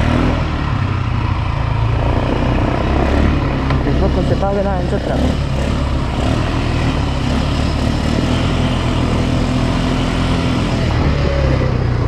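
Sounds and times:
atv engine running: 0:00.0 - 0:12.0.

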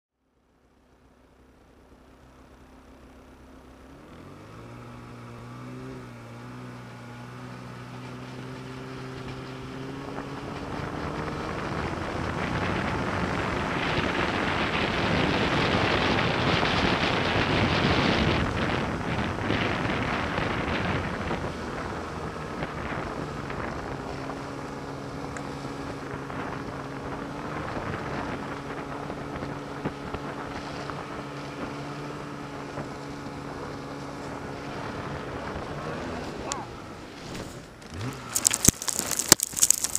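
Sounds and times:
snowmobile engine accelerating: 0:01.7 - 0:39.9
wind on microphone: 0:08.2 - 0:39.7.

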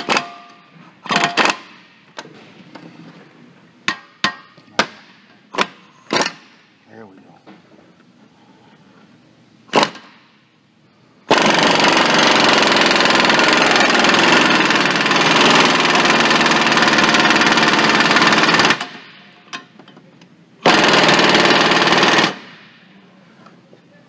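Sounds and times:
impact wrench hammering: 0:00.0 - 0:01.9, 0:03.9 - 0:06.6, 0:11.3 - 0:19.7.

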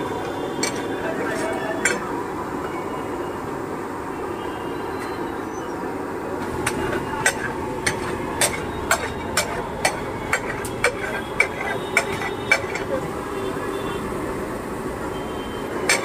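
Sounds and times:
spatula striking iron griddle: 0:06.4 - 0:13.0.

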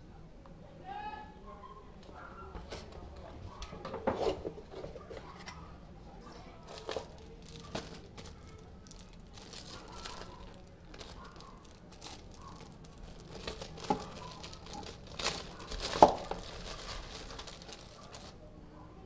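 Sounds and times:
plastic bag crinkling: 0:06.5 - 0:18.4.

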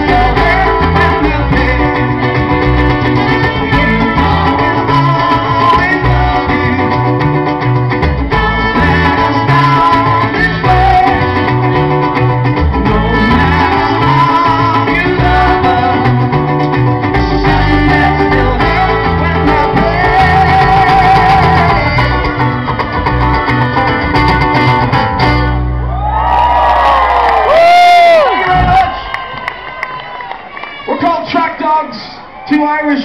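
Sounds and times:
cajon beat: 0:00.0 - 0:25.7
acoustic guitar: 0:00.0 - 0:26.6
electric bass: 0:00.0 - 0:29.1.

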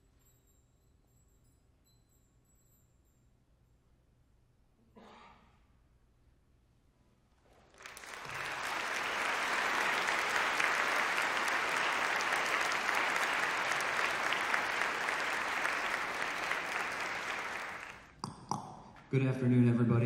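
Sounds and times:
audience applauding: 0:07.7 - 0:18.1.

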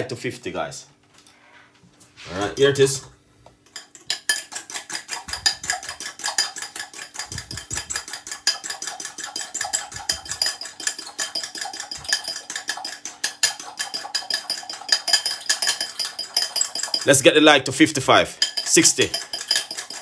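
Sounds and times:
fork scraping a glass bowl: 0:03.8 - 0:17.1, 0:18.4 - 0:20.0.

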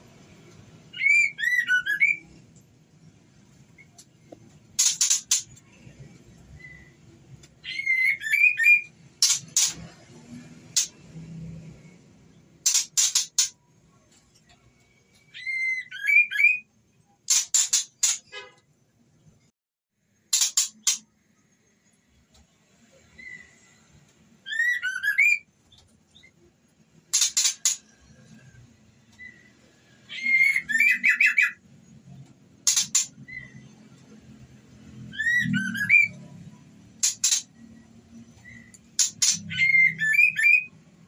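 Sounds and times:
bird harsh rasping calls: 0:04.8 - 0:05.6, 0:07.6 - 0:09.8, 0:12.6 - 0:13.6, 0:27.1 - 0:27.9, 0:32.6 - 0:33.7, 0:37.0 - 0:37.6, 0:38.4 - 0:40.7
bird warbling whistled phrases: 0:30.2 - 0:31.6.

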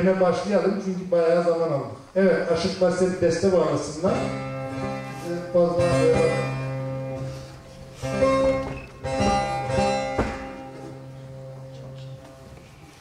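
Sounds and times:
long-necked lute strummed: 0:03.9 - 0:12.5.

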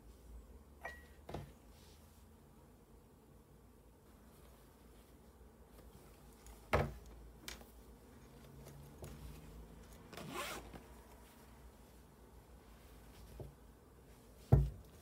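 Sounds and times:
phone handled into fabric pouch: 0:08.3 - 0:11.5
pouch zipper: 0:09.9 - 0:10.8.

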